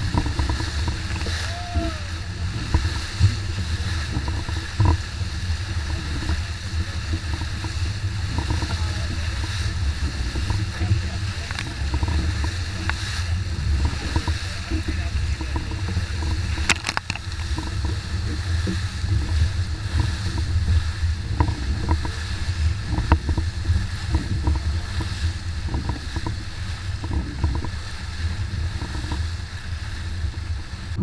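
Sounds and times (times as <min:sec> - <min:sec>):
water rushing past hull: 0:00.0 - 0:31.0
wind buffeting microphone: 0:00.0 - 0:31.0.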